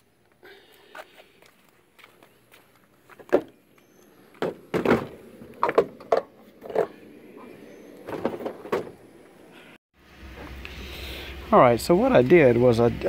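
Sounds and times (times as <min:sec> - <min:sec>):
plastic panel knocks and scuffs: 0:04.4 - 0:06.2.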